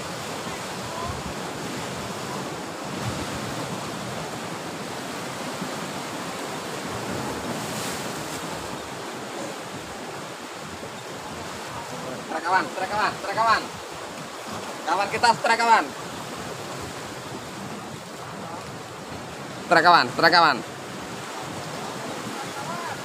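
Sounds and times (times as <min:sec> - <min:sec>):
surf breaking on rocks: 0:00.0 - 0:17.8.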